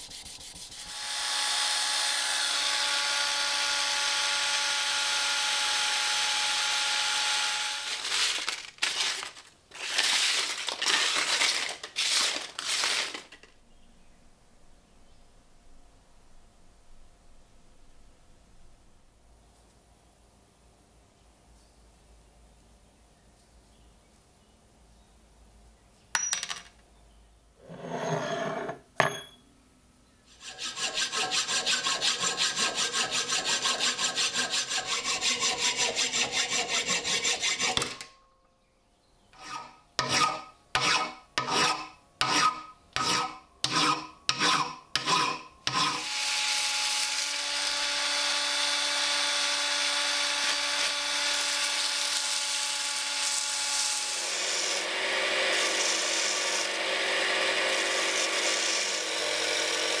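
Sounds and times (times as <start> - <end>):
scraping strokes: 0.0 - 1.0, 30.3 - 38.0, 39.4 - 46.1
steel rod rasping: 30.4 - 38.1, 39.4 - 46.1
belt grinder grinding rod: 42.4 - 60.0.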